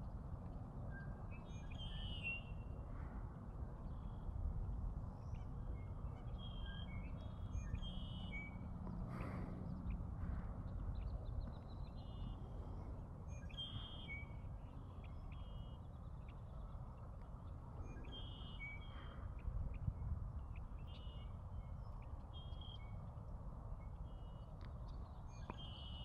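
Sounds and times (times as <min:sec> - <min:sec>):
low steady rumble: 0:00.0 - 0:26.0
blackbird calling and singing: 0:13.3 - 0:16.5, 0:17.8 - 0:19.2.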